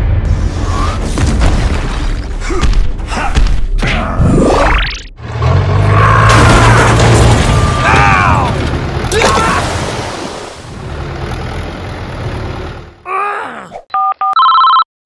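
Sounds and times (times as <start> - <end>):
electronic telephone beeps: 13.9 - 14.9.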